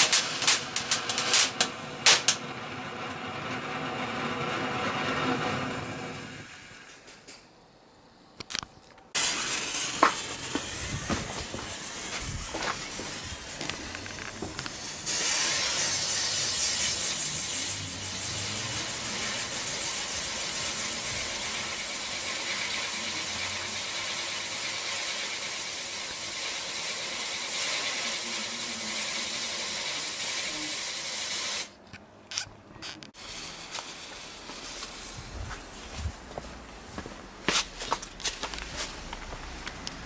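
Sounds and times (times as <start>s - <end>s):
firework hissing sparks: 0.0s - 4.3s, 9.2s - 31.8s, 33.1s - 35.9s.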